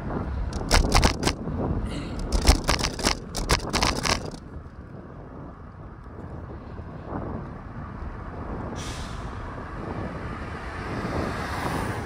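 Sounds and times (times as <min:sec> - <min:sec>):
wind and road rumble: 0:00.0 - 0:12.0
clicking scraping rattles: 0:00.5 - 0:01.4, 0:02.2 - 0:04.4.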